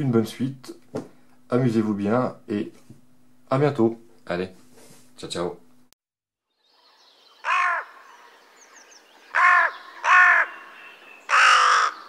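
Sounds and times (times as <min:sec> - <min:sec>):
crow cawing: 0:07.4 - 0:08.4, 0:09.2 - 0:12.0.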